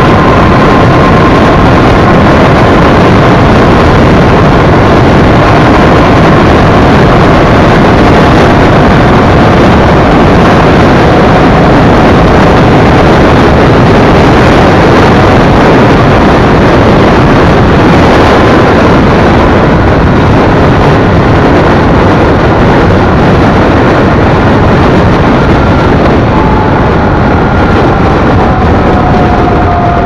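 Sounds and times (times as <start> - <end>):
wind rush on microphone: 0.0 - 30.0
motorcycle engine: 23.1 - 30.0.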